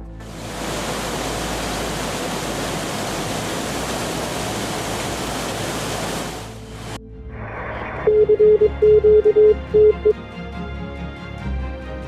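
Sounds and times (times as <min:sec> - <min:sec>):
floodwater rushing: 0:00.1 - 0:07.0.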